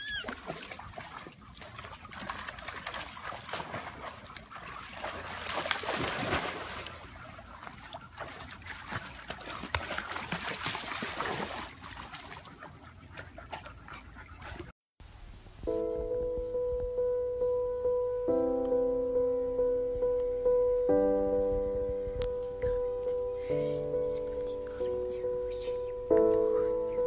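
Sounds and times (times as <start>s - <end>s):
pool water splashing: 0.0s - 15.7s.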